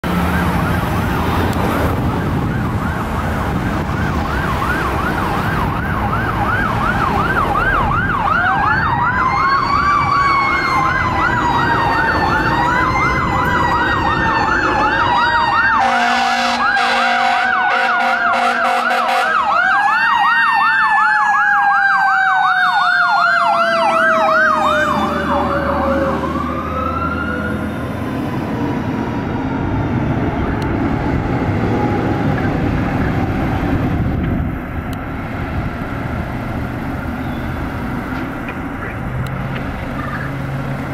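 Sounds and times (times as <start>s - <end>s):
truck engine and tyres passing: 0.0s - 40.9s
electronic siren yelp: 0.3s - 27.8s
air horn blasts: 15.8s - 19.4s.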